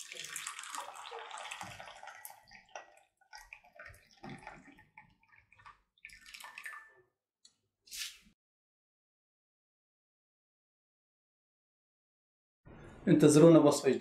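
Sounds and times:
coffee pouring into a cup: 0:00.0 - 0:07.0.

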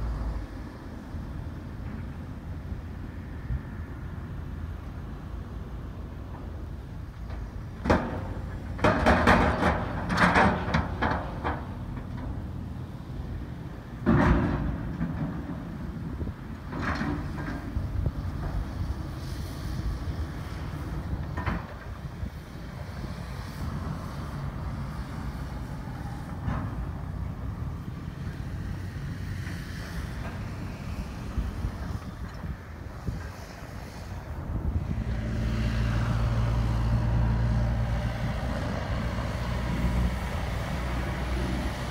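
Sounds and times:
backhoe engine rumble: 0:00.0 - 0:41.9
metal clanks and bangs: 0:07.8 - 0:12.3, 0:14.0 - 0:15.7
wind buffeting microphone: 0:15.4 - 0:41.9.

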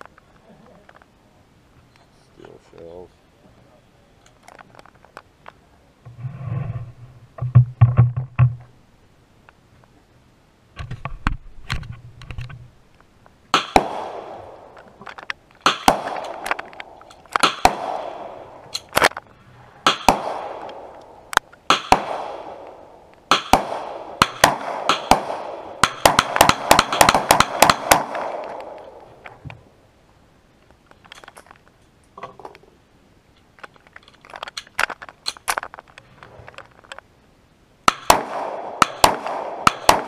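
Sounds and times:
handgun shots echoing: 0:13.5 - 0:14.8, 0:15.6 - 0:19.1, 0:19.8 - 0:21.1, 0:21.7 - 0:29.0, 0:37.9 - 0:40.0.

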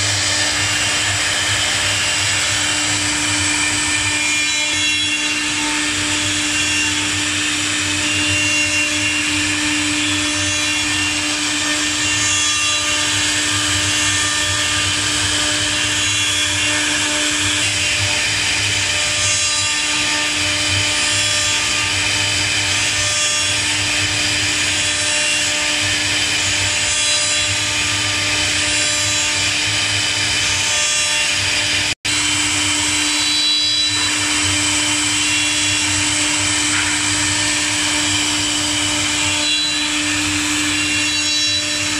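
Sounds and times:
router spindle whine: 0:00.0 - 0:41.9
wood cutting noise: 0:00.0 - 0:41.9.

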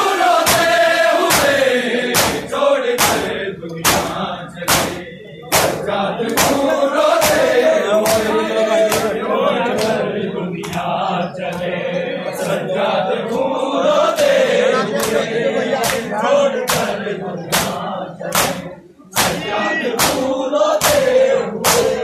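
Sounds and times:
sharp beats in unison: 0:00.0 - 0:09.9, 0:15.0 - 0:22.0
men chanting together: 0:00.0 - 0:22.0.

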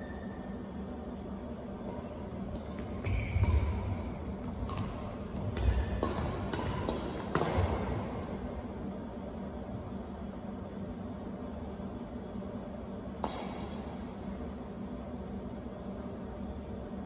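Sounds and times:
racket hitting shuttlecock: 0:01.8 - 0:08.6, 0:13.1 - 0:14.4.

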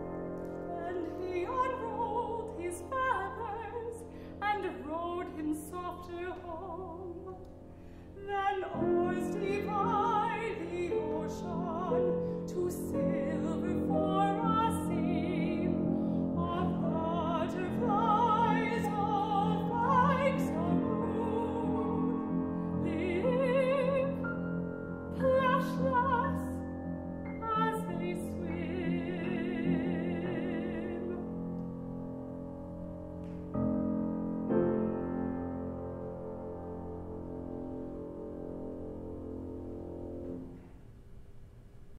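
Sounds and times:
grand piano: 0:00.0 - 0:41.9
woman singing with vibrato: 0:00.7 - 0:07.4, 0:08.2 - 0:24.3, 0:25.1 - 0:26.7, 0:27.3 - 0:31.3.

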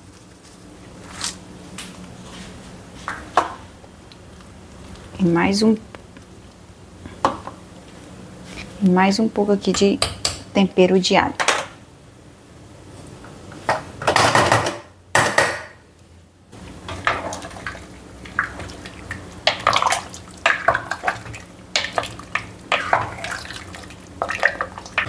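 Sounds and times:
wet squelching of food: 0:04.0 - 0:06.8, 0:17.3 - 0:25.0
wooden spoon stirring stew: 0:16.6 - 0:25.0
spoon knocking and scraping pot: 0:21.8 - 0:23.4.

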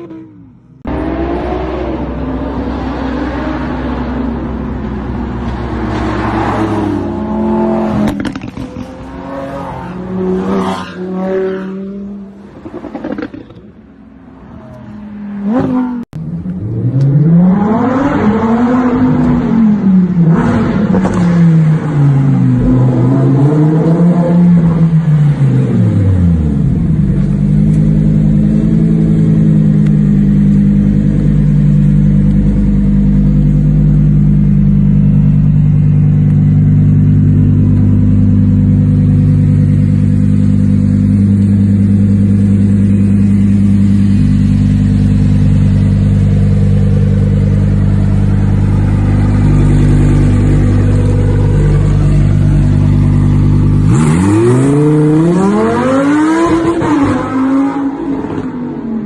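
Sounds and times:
car engine running steadily: 0:24.4 - 0:55.8
car engine revving hard: 0:38.8 - 0:58.4.

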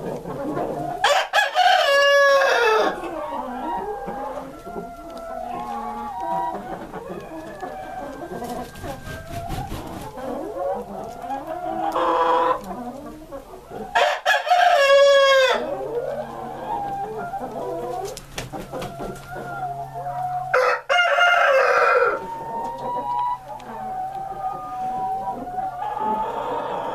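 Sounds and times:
chickens clucking: 0:00.0 - 0:26.9
rooster crowing: 0:01.0 - 0:04.5, 0:07.0 - 0:09.5, 0:14.0 - 0:15.7, 0:19.0 - 0:22.6.

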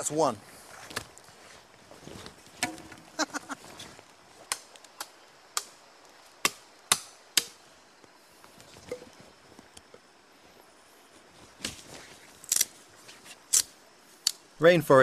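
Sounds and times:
machete chopping into sapling: 0:02.6 - 0:03.2, 0:06.4 - 0:07.6.

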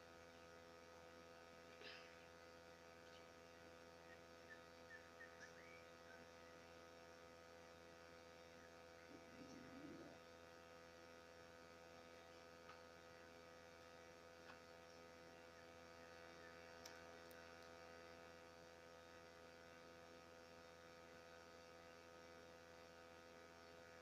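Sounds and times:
faint electrical hum: 0:00.0 - 0:24.0
faint murmur: 0:09.0 - 0:10.4.

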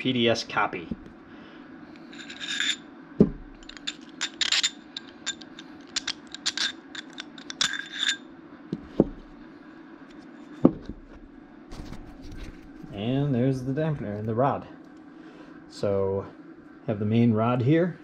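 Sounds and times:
metal parts clinking: 0:02.1 - 0:02.9, 0:03.6 - 0:08.3.

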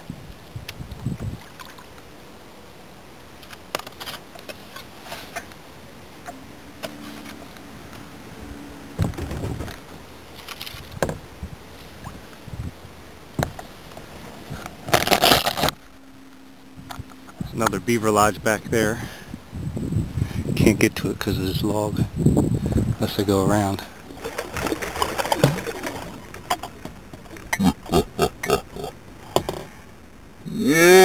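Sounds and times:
kayak knocking and scraping: 0:09.0 - 0:12.0, 0:22.7 - 0:27.6, 0:29.2 - 0:29.8.

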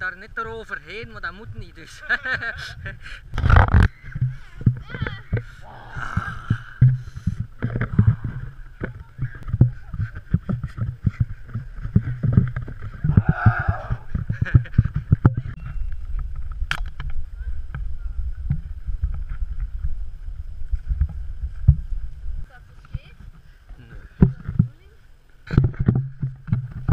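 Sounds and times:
wind rumble on microphone: 0:01.0 - 0:26.9.

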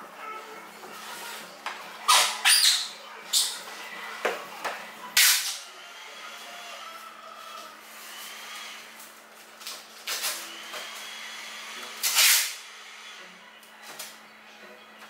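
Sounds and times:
adhesive tape ripping off roll: 0:02.1 - 0:03.6, 0:05.2 - 0:05.6, 0:09.0 - 0:10.4, 0:12.0 - 0:12.6.

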